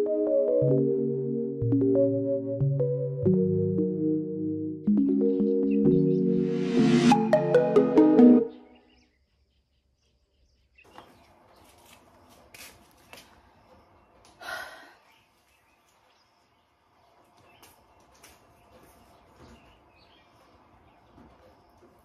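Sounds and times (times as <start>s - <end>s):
faint outdoor background noise: 8.6s - 22.0s.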